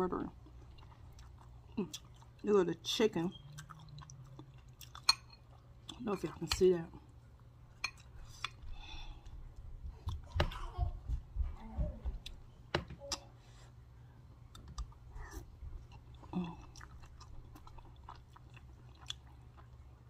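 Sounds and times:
person chewing food: 0.4s - 2.4s, 3.3s - 6.4s, 7.1s - 10.7s, 14.3s - 20.0s.

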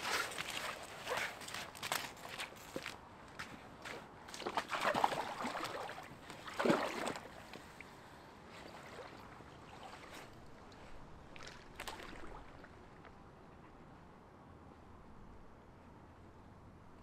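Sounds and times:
water splashing and sloshing: 0.0s - 13.2s
faint outdoor background: 0.0s - 17.0s.

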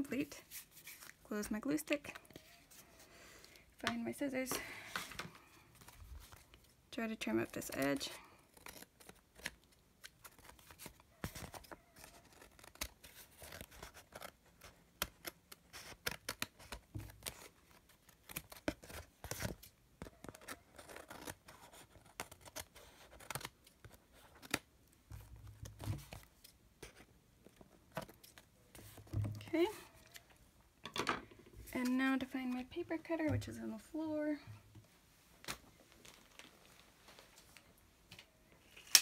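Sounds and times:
scissors snipping paper: 7.6s - 24.6s.

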